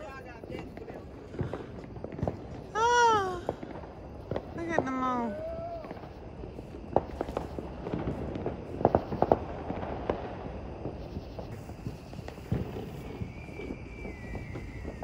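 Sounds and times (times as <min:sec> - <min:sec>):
firework whistle: 0:00.0 - 0:15.0
fireworks popping: 0:00.0 - 0:15.0.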